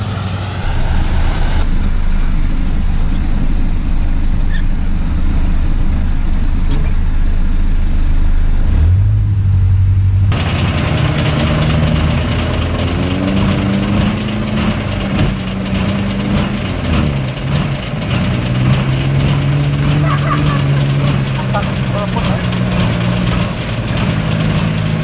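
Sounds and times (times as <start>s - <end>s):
low engine drone: 0.0s - 25.0s
off-road vehicle engine revving: 0.0s - 25.0s.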